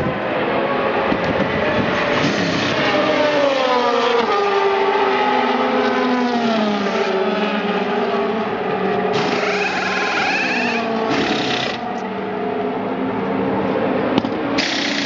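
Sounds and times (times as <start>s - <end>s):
racing car engine passing: 0.0s - 11.1s.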